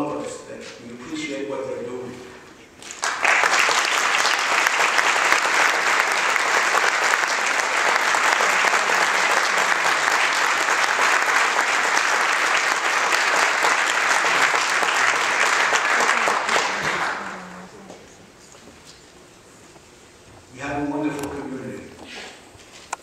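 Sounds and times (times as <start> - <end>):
audience applauding: 2.8 - 17.8.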